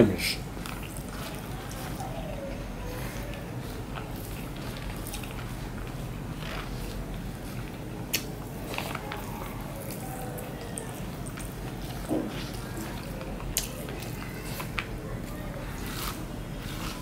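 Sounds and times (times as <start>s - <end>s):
fingers mixing rice and curry: 0.4s - 17.0s
chewing: 0.5s - 17.0s.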